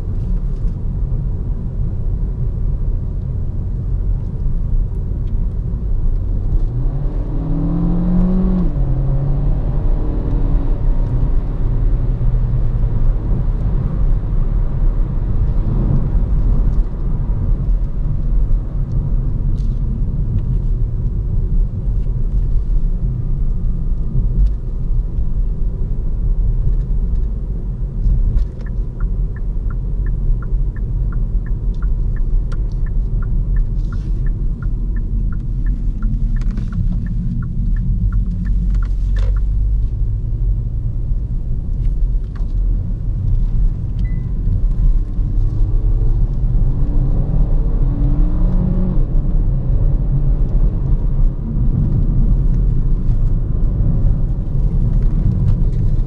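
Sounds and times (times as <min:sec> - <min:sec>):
car engine accelerating: 0:05.2 - 0:19.1, 0:27.0 - 0:56.0
turn signal ticking: 0:28.0 - 0:56.0.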